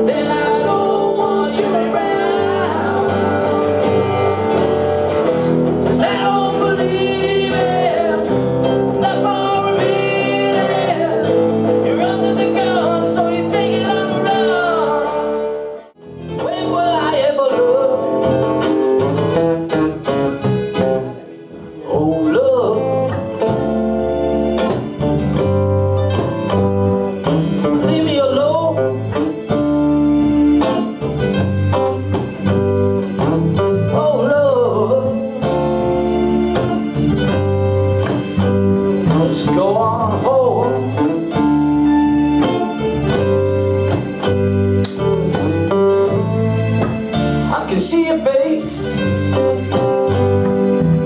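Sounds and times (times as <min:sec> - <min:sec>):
person singing: 0:00.0 - 0:04.9, 0:05.8 - 0:19.1, 0:21.2 - 0:23.5, 0:27.1 - 0:29.6, 0:32.4 - 0:37.3, 0:38.1 - 0:41.6, 0:47.0 - 0:50.1
acoustic guitar strummed: 0:00.0 - 0:51.0
electric bass: 0:00.0 - 0:51.0
keyboard: 0:00.0 - 0:51.0
cajon drum: 0:16.2 - 0:21.2, 0:23.4 - 0:28.1, 0:35.4 - 0:47.9.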